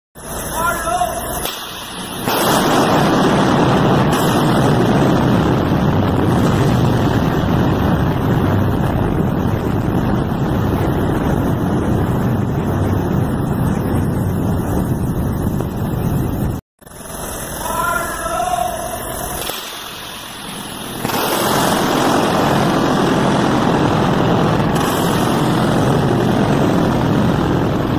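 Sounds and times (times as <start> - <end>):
air buffeting microphone: 0.2 - 19.4
rush of wind from explosion: 1.5 - 16.6, 19.4 - 27.9.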